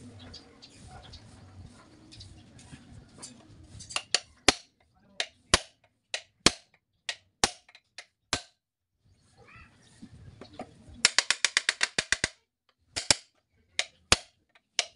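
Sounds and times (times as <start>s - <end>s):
hammer tapping metal punch: 3.9s - 8.6s, 13.0s - 14.9s.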